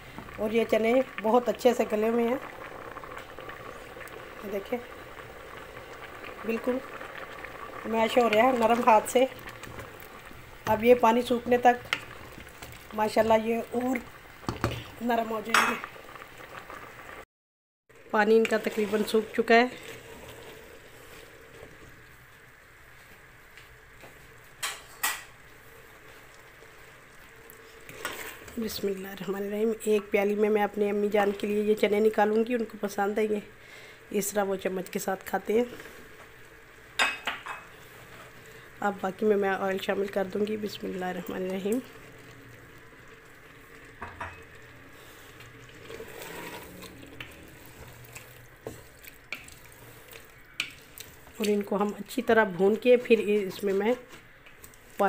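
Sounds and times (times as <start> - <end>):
chickpeas sizzling in oil: 0.0 - 17.2, 17.9 - 55.0
faint simmering: 0.0 - 17.2, 17.9 - 55.0
wooden spoon stirring: 6.0 - 15.8, 18.1 - 22.1, 26.0 - 32.0, 37.0 - 55.0
wooden spoon stirring chickpeas: 18.2 - 20.5, 44.9 - 55.0.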